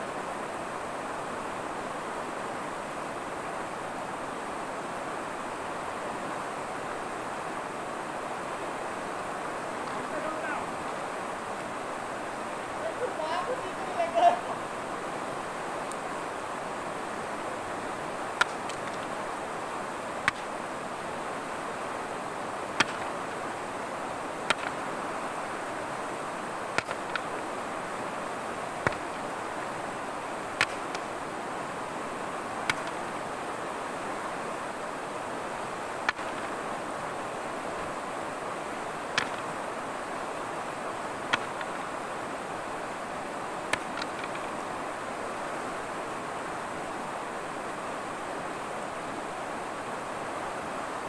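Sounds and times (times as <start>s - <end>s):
river rushing over stones: 0.0s - 51.0s
sharp clicks: 32.7s - 33.0s, 43.7s - 44.5s.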